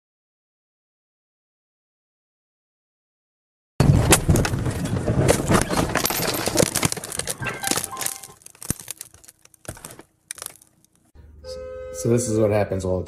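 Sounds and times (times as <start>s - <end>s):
clattering and rattling: 3.8s - 11.1s.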